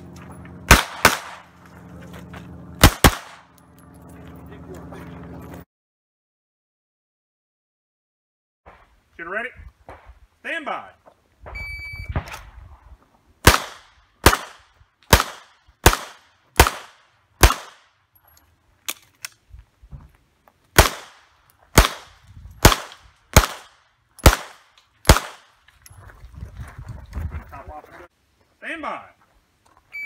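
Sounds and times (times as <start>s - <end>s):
pistol shots: 0.7s - 1.5s, 2.8s - 3.5s, 13.4s - 17.9s, 20.8s - 25.6s.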